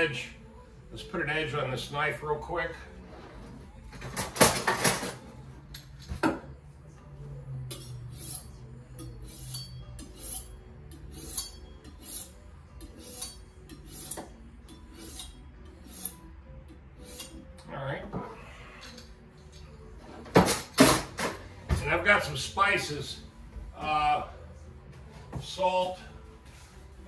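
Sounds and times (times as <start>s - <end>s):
knife scraping sharpening rod: 7.7s - 16.3s, 17.0s - 17.5s.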